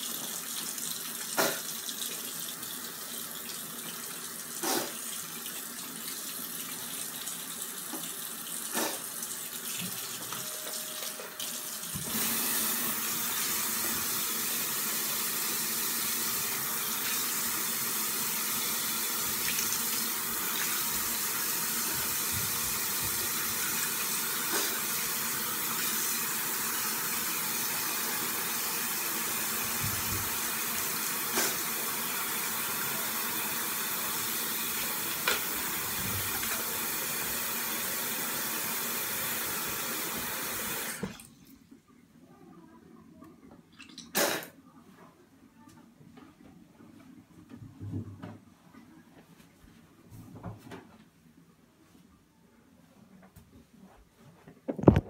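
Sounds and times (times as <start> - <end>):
sink tap running: 0.0 - 41.2.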